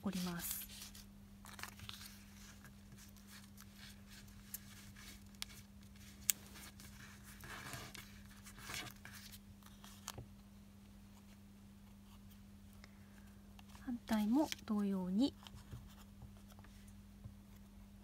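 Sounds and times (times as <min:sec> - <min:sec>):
faint steady hum: 0:00.0 - 0:18.0
paper rustling: 0:00.1 - 0:10.2.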